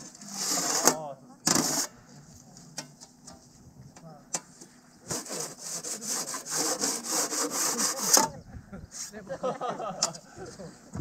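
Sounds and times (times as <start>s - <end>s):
gloved hand rubbing glass: 5.1s - 9.2s.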